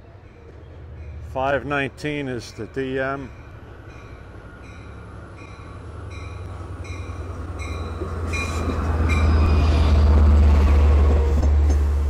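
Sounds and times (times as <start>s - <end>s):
diesel locomotive engine rumble: 0.0s - 12.0s
locomotive bell ringing: 0.4s - 9.6s.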